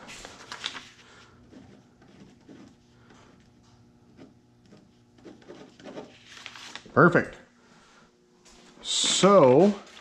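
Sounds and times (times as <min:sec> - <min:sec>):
paper rustling: 0:00.0 - 0:02.7, 0:05.3 - 0:07.0, 0:09.3 - 0:10.0
pen writing on paper: 0:04.1 - 0:06.2.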